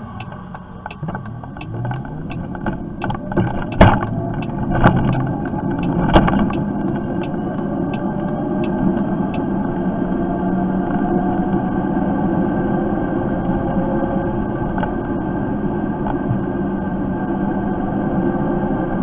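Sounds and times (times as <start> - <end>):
electric moped hum and road noise: 0.0 - 19.0
light rattling clicks: 0.1 - 9.4
sharp knocks: 0.2 - 7.3.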